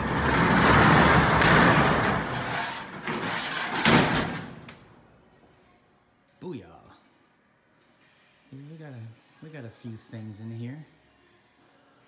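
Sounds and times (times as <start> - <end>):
metal roll-up door rattling: 0.0 - 4.7.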